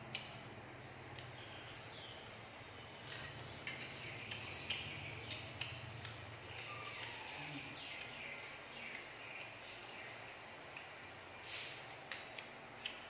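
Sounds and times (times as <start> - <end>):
chewing with mouth clicks: 2.9 - 10.1
faint bird chirps: 6.4 - 10.4.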